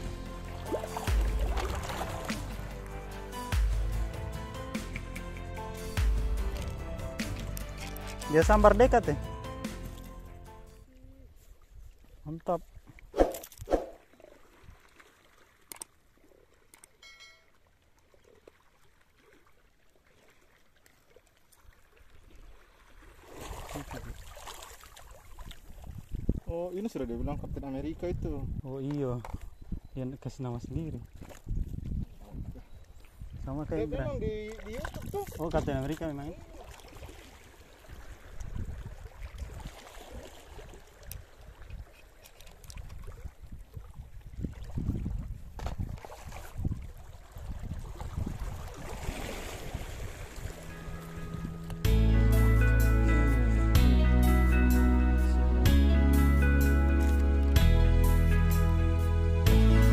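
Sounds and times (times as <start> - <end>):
faint trickle of water: 14.0 - 26.6
wind buffeting microphone: 25.6 - 26.5, 27.2 - 28.7, 30.6 - 35.8, 37.9 - 39.8, 42.8 - 51.7.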